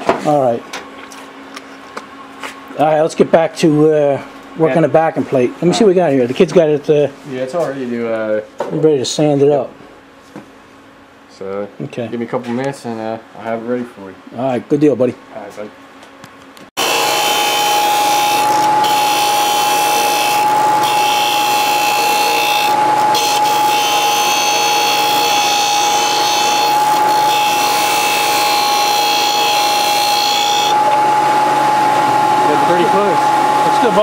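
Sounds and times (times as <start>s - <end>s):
metal grinding on sanding belt: 16.8s - 30.8s
belt sander motor whine: 16.8s - 34.0s.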